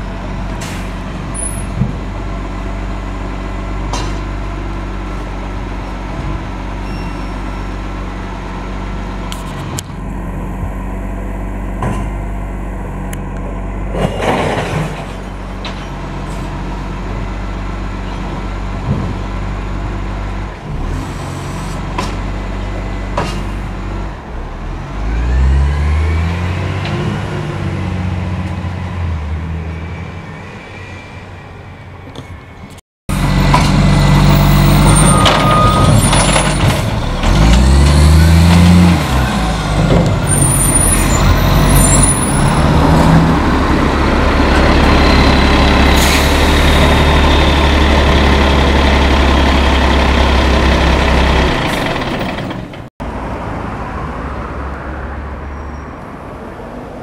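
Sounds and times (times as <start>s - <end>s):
truck engine revving: 20.6s - 30.2s, 33.1s - 53.3s
diesel truck engine idling: 43.3s - 52.9s.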